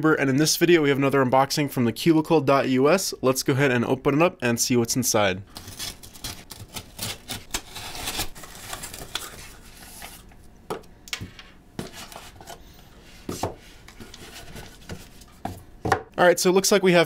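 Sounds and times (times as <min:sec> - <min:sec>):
cardboard box cut and torn open: 0:05.6 - 0:09.2.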